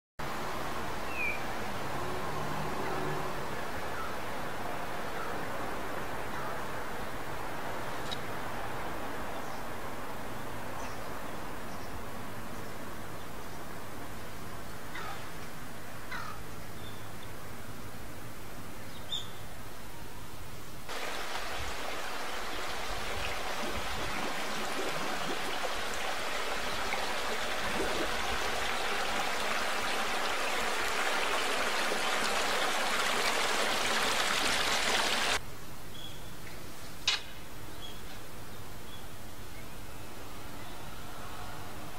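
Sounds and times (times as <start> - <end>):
water rushing through channels: 20.9 - 35.4.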